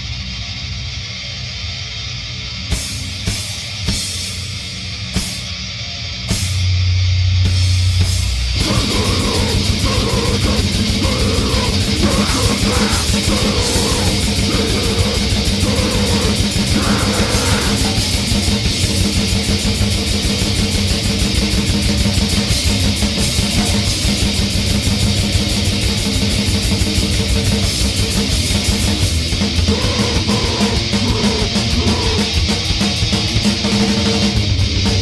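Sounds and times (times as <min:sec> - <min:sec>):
distorted guitar: 0:00.0 - 0:35.0
fast dense drumming: 0:07.4 - 0:35.0.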